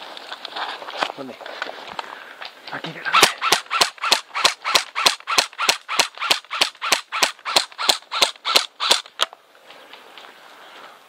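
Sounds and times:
airsoft gun shots: 3.2 - 9.1.

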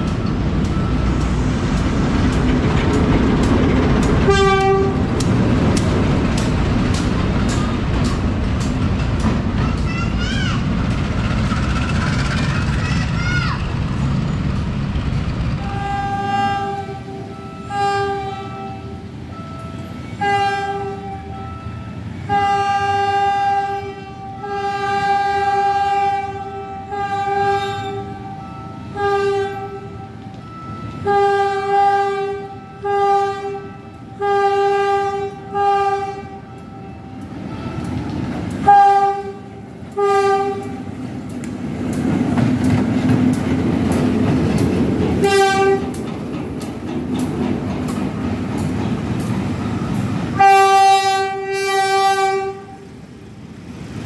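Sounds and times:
locomotive engine rumble: 0.0 - 17.4
locomotive horn blasts: 4.2 - 5.2, 15.6 - 37.9, 38.6 - 40.9, 45.2 - 46.0, 50.3 - 52.9.

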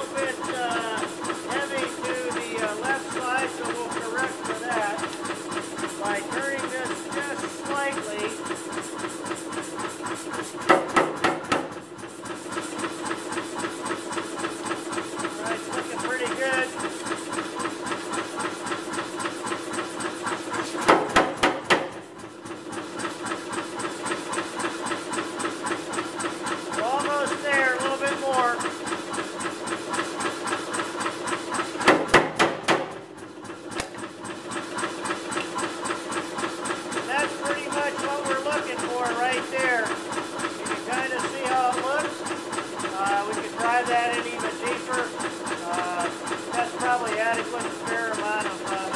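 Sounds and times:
power hammer blows on hot steel: 0.0 - 11.8, 26.4 - 28.8
running hammer hum and ticking: 0.0 - 48.9.

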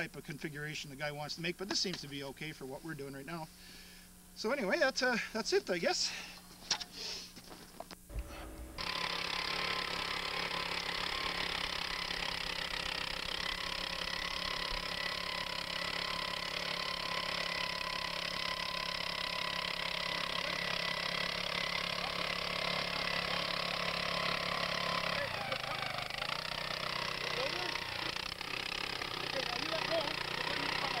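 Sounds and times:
earth auger engine running: 8.1 - 31.0.

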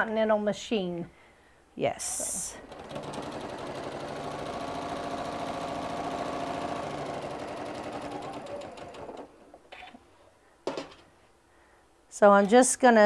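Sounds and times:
sewing machine stitching: 2.6 - 9.9.

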